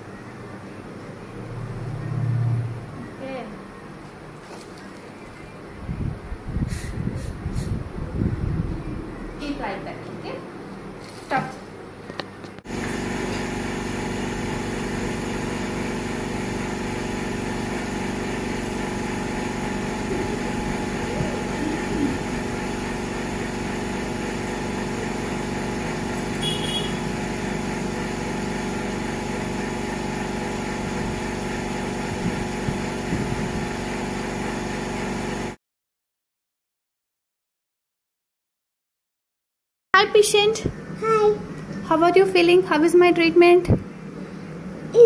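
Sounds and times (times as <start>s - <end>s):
dental equipment motor hum: 12.7s - 34.7s.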